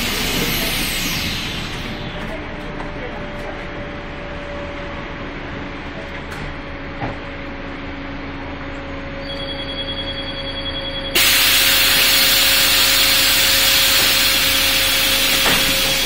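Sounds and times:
bus engine running with whine: 0.0s - 16.0s
high steady tone: 9.2s - 13.2s.

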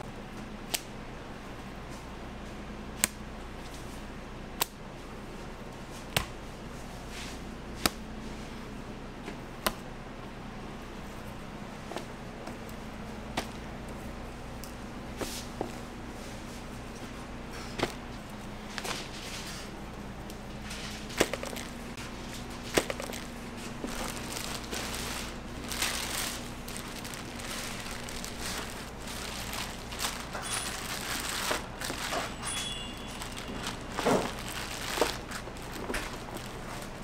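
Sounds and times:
low steady hum: 0.0s - 37.0s
paper rustling and crinkling: 20.6s - 37.0s.

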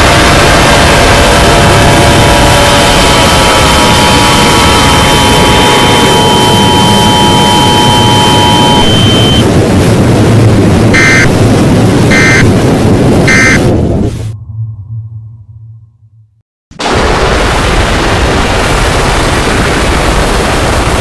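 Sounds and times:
distorted harsh noise: 0.0s - 16.0s
steady high tones: 1.4s - 9.4s
short electronic beeps: 2.6s - 9.5s, 11.0s - 11.3s, 12.1s - 12.5s, 13.3s - 13.6s.

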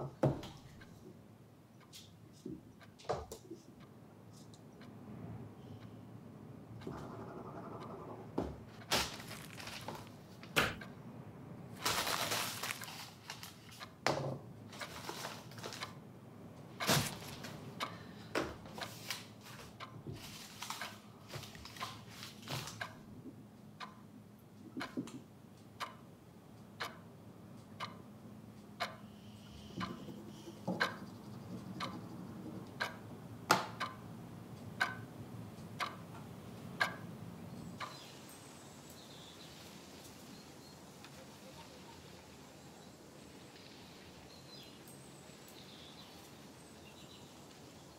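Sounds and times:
sharp clock-like ticks: 6.6s - 8.4s, 17.8s - 18.1s, 18.8s - 20.0s, 22.8s - 23.1s, 23.7s - 37.2s, 37.8s - 38.1s
paper tearing and crumpling: 8.9s - 9.9s, 11.8s - 13.6s.

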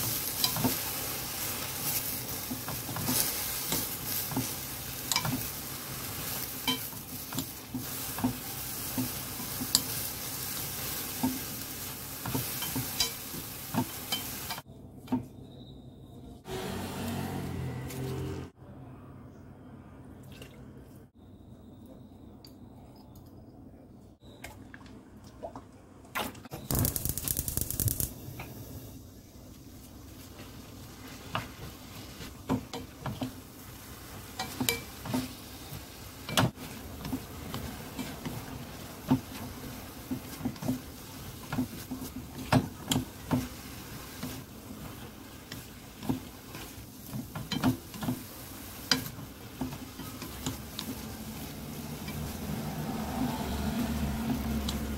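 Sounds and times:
wooden spatula scraping a wok: 0.0s - 14.6s, 30.1s - 54.9s
vegetables sizzling in a wok: 0.0s - 14.7s, 26.6s - 54.9s.

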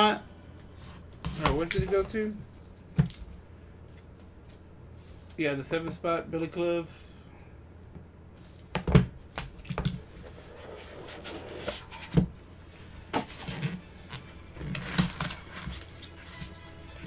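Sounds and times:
cardboard and foam rustling: 10.0s - 17.0s.

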